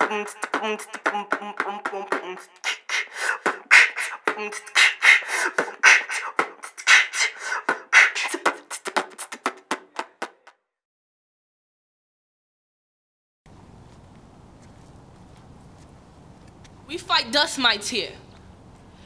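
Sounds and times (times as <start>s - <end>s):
beatboxing: 0.0s - 10.6s.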